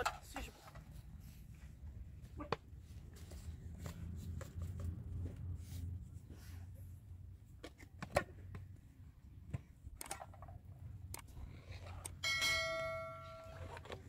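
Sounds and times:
metal dish ringing: 0:12.2 - 0:13.6.

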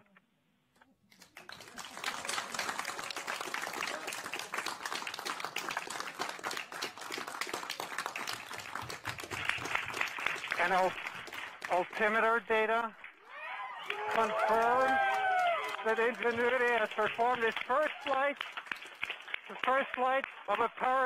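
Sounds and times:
crowd applause: 0:01.2 - 0:12.4, 0:13.1 - 0:21.0.

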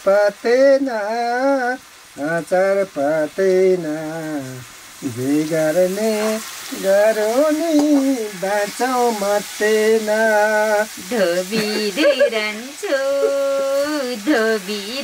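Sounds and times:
food sizzling in a pan: 0:00.0 - 0:15.0
person singing unaccompanied: 0:00.0 - 0:15.0.

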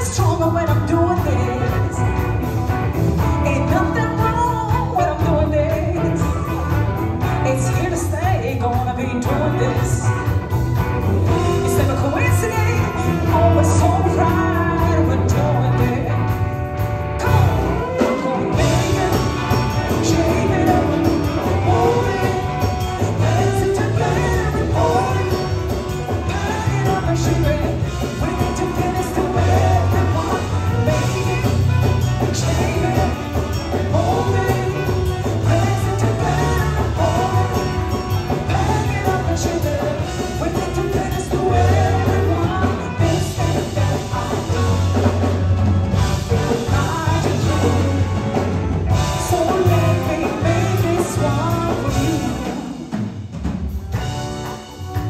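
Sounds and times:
woman singing: 0:00.0 - 0:16.6, 0:17.2 - 0:45.4, 0:46.1 - 0:53.0
bass line: 0:00.0 - 0:55.0
drums: 0:00.0 - 0:55.0
electric guitar: 0:00.0 - 0:55.0
saxophone: 0:00.0 - 0:55.0
trumpet: 0:00.0 - 0:55.0.

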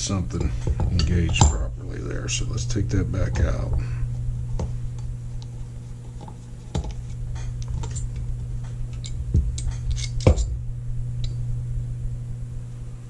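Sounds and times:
low hum: 0:00.0 - 0:13.0
metal parts and tools clicking: 0:08.9 - 0:10.5.

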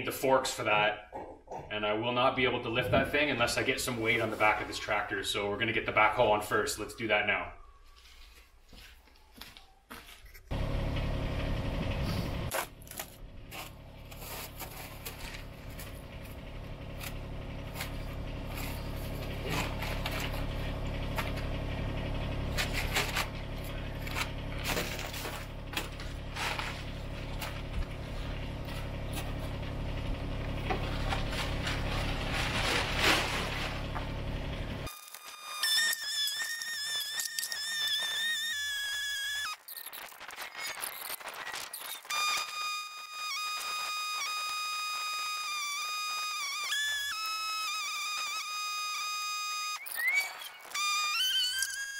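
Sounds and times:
tractor diesel engine idling: 0:10.5 - 0:34.9
plastic tarp rustling: 0:12.5 - 0:16.3, 0:22.6 - 0:29.4, 0:30.7 - 0:35.0.

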